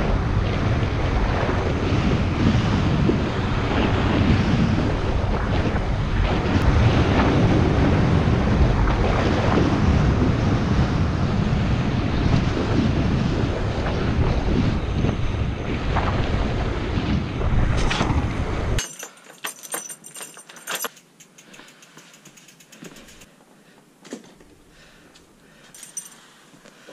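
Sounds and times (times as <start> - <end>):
wind buffeting microphone: 0.0 - 18.8
sharp clicks and light rattles: 18.8 - 23.3.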